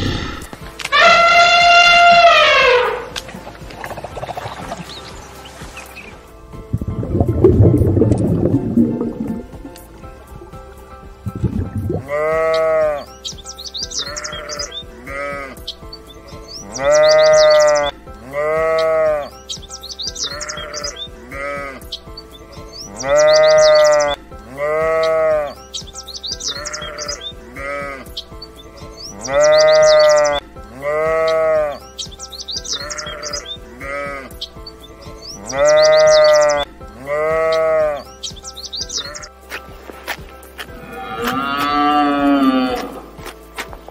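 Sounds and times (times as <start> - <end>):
sheep bleating: 0.9 - 3.1, 12.0 - 13.0, 14.0 - 15.6, 16.7 - 19.4, 20.3 - 21.9, 23.0 - 25.6, 26.5 - 28.1, 29.2 - 31.8, 32.8 - 34.4, 35.5 - 38.1, 40.8 - 43.0
high chirps: 4.3 - 18.0, 18.7 - 24.2, 25.0 - 27.4, 28.1 - 30.4, 31.2 - 33.7, 34.3 - 36.7, 37.4 - 39.7.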